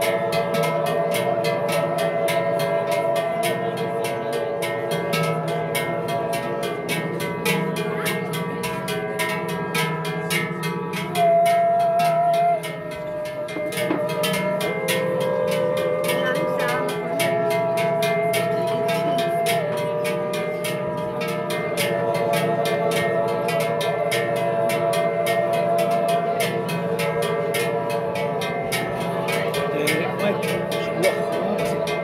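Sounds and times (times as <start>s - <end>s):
male choir yodeling: 0.0s - 4.7s, 11.1s - 32.0s
cowbells clanking: 0.0s - 32.0s.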